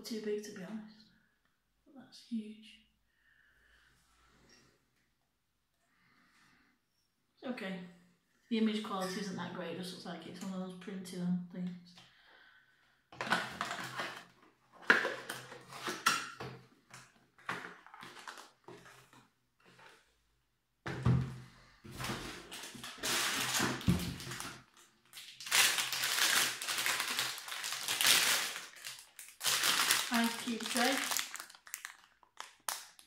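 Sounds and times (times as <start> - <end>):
packaging rustling and crinkling: 17.3 - 20.0, 21.9 - 33.0.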